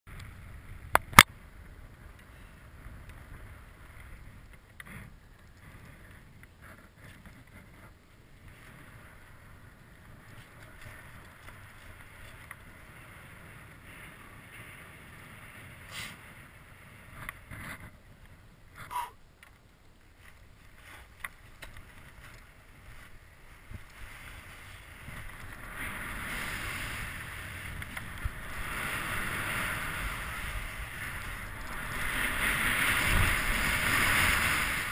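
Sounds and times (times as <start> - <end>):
skis hissing through snow: 14.2 - 16.4, 22.6 - 34.9.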